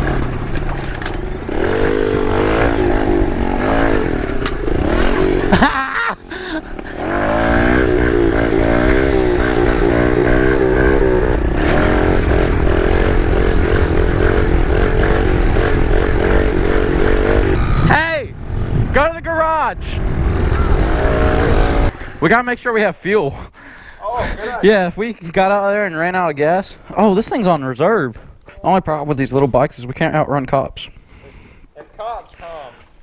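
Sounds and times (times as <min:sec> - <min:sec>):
small motorbike engine revving: 0:00.0 - 0:05.8, 0:06.8 - 0:18.0.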